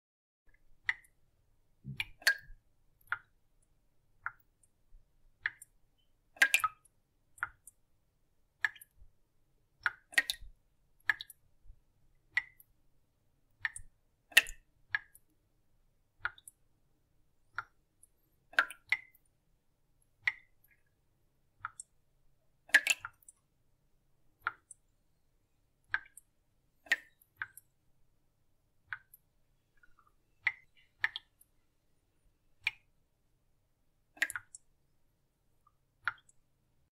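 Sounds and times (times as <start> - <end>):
water drops dripping: 0.5 - 1.2, 1.8 - 7.8, 8.6 - 9.1, 9.8 - 12.7, 13.5 - 15.3, 16.2 - 16.6, 17.5 - 19.3, 20.2 - 20.9, 21.6 - 22.0, 22.6 - 23.4, 24.4 - 24.8, 25.8 - 27.7, 28.8 - 31.6, 34.1 - 34.7, 35.6 - 36.4.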